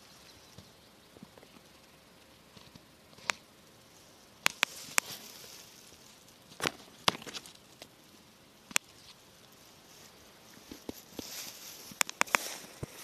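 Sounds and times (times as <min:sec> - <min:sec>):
rustling in dry grass: 0:00.0 - 0:13.0
twigs clicking and crackling: 0:04.4 - 0:08.0, 0:10.5 - 0:13.0.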